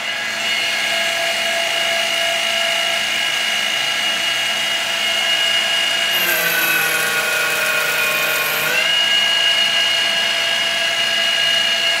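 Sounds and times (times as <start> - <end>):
milling machine spindle whine: 6.0 - 9.6.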